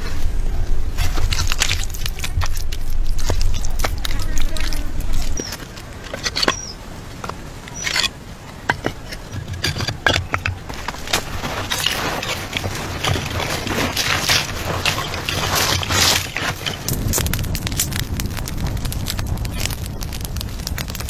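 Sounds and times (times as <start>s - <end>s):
dry soil swept over tiles: 10.7s - 17.3s.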